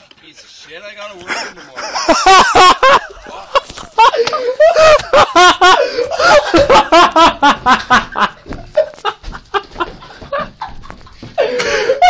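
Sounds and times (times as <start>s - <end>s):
loud hard laughter: 1.3s - 12.0s.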